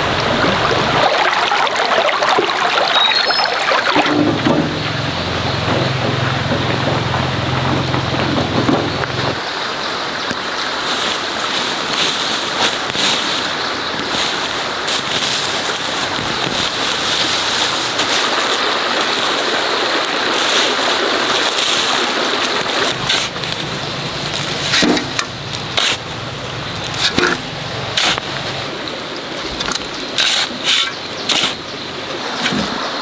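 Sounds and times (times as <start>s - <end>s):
stream rushing: 0.0s - 33.0s
hoe scraping soil: 10.9s - 19.4s, 20.3s - 26.1s, 26.7s - 31.8s.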